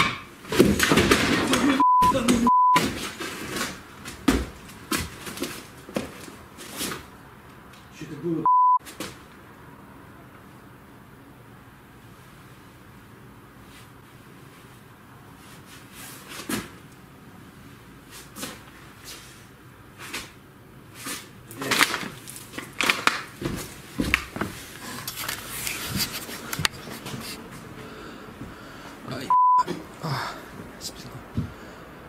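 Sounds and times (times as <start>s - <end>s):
short loud beep: 1.8s - 2.8s, 8.5s - 8.8s, 29.3s - 29.6s.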